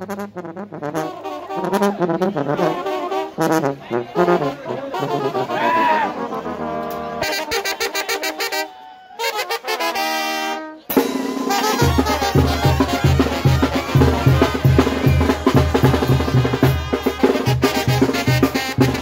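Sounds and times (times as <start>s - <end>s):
held brass chord: 0.0s - 8.6s, 9.3s - 19.0s
trumpets and trombones: 0.0s - 19.0s
tuba: 0.0s - 19.0s
bass drum beat: 11.0s - 19.0s.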